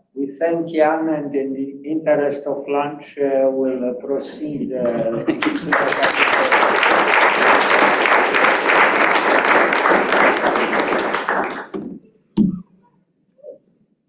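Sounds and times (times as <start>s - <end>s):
audience applauding: 4.8s - 11.8s.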